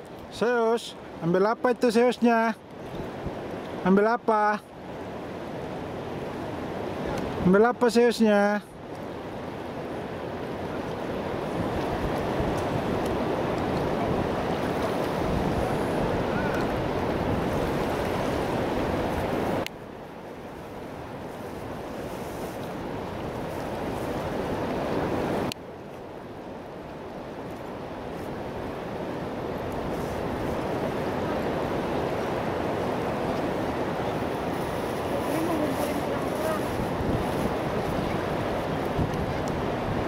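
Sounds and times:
surf washing on shore: 0.0 - 40.0
wind buffeting microphone: 10.0 - 19.7, 28.3 - 40.0.

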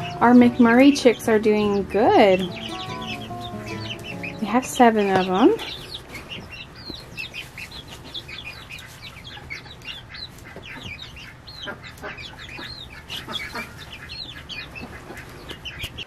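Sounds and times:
young chickens peeping: 0.0 - 16.0.

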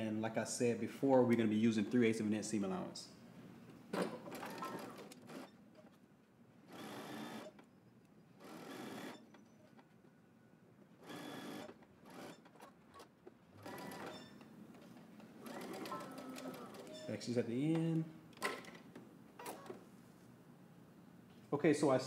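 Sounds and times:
sewing machine stitching: 4.2 - 5.6, 6.7 - 7.5, 8.4 - 9.3, 11.0 - 17.0.

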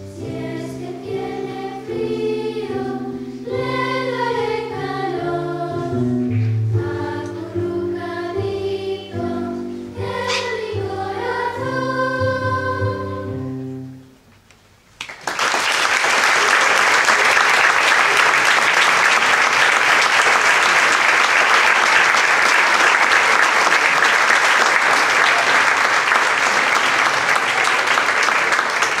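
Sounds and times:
band and choir chord: 0.0 - 14.1
audience applause: 15.0 - 29.0.

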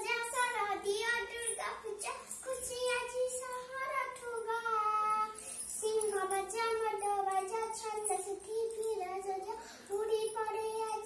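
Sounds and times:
girl chanting in sing-song voice: 0.0 - 11.0.

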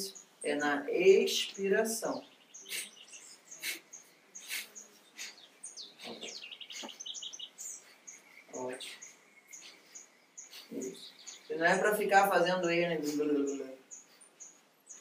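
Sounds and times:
birds chirping: 0.0 - 15.0
sharp breath exhalations: 2.7 - 3.0, 3.6 - 7.0.

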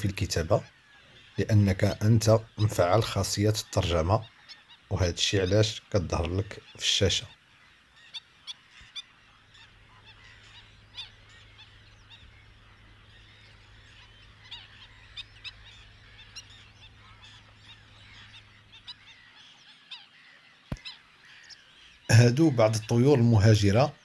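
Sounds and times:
waterbirds calling: 0.0 - 24.0.

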